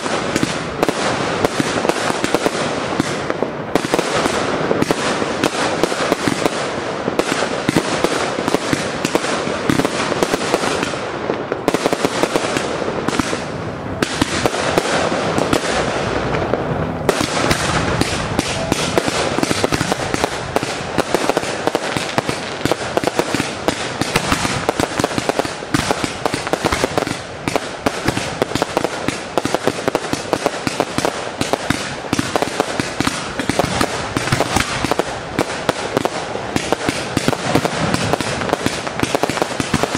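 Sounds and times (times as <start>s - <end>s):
fireworks bangs and crackles: 0.0s - 39.9s.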